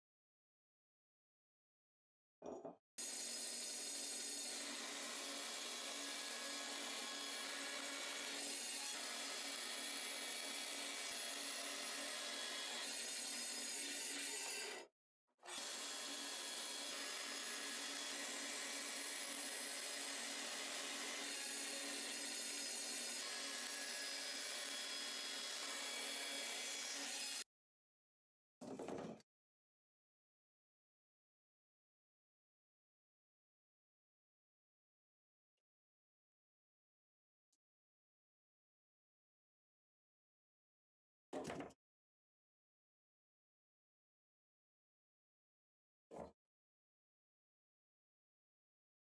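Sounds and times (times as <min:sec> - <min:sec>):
band saw cutting plastic: 0:03.0 - 0:27.5.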